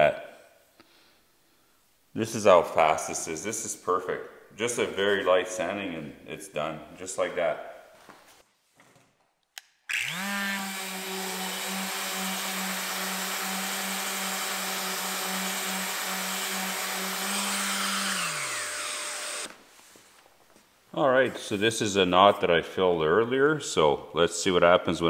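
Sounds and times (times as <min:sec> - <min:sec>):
orbital sander motor running: 0:09.9 - 0:19.5.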